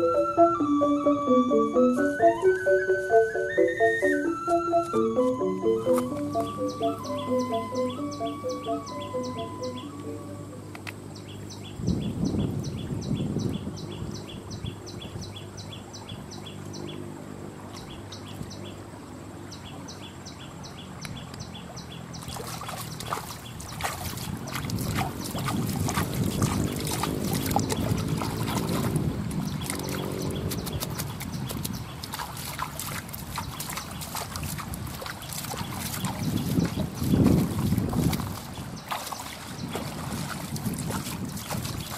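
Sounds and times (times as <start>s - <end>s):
rhythmic high chirping: 0.0s - 10.7s
hand splashing pond water: 21.1s - 41.9s.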